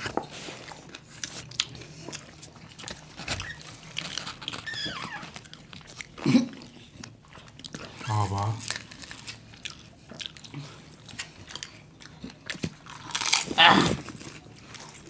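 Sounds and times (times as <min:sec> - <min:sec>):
crunchy chewing: 0:00.0 - 0:15.0
falling squeak: 0:04.6 - 0:05.3.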